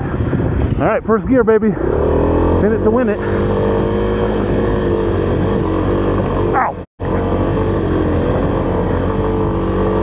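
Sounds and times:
wind buffeting microphone: 0.0 - 6.4
motorcycle engine pulling hard: 1.7 - 10.0.

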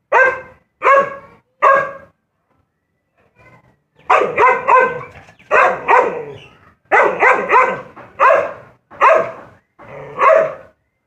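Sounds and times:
dog barking: 0.1 - 2.1, 4.1 - 9.4, 10.2 - 10.7.

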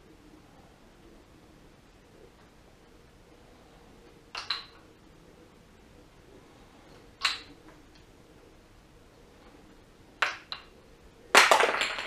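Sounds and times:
wooden ball toy clacking: 4.3 - 4.9, 7.2 - 8.1, 10.2 - 10.7, 11.3 - 12.0.

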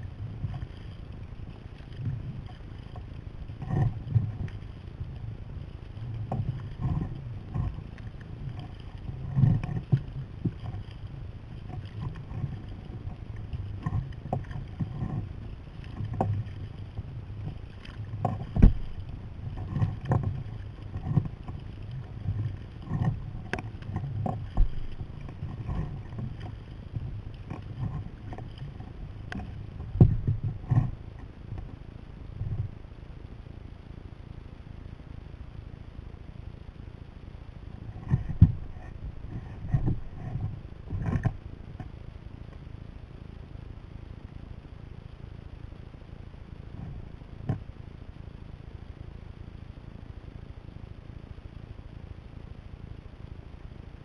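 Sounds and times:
steady low rumble: 0.0 - 54.0
paddle splashing in water: 0.4 - 31.7.

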